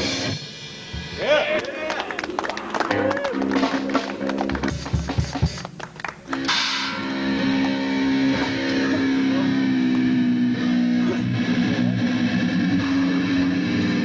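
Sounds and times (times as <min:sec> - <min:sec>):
rock band playing: 0:00.0 - 0:14.0
cymbal crash: 0:06.5 - 0:11.7.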